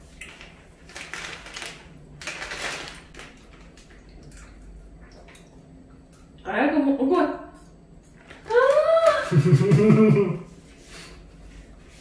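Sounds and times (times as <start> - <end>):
low steady hum: 0.0 - 12.0
chip bag rustling: 0.2 - 3.8.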